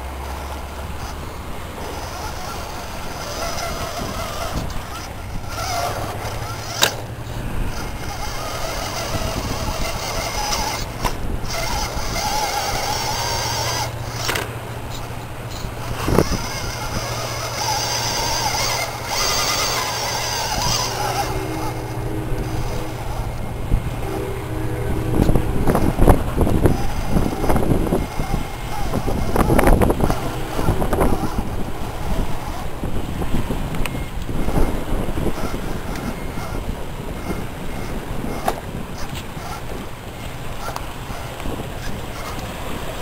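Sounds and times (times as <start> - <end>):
tyres and chassis knocking rock: 0.0 - 21.8
electric motor whining: 0.0 - 43.0.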